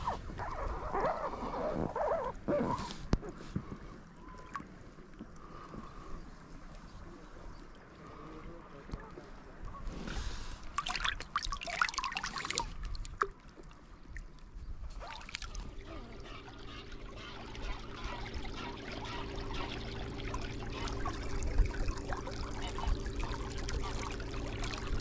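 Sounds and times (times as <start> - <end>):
faint steady hum: 0.0 - 25.0
water splashing: 10.1 - 25.0
water trickling and dripping: 10.7 - 25.0.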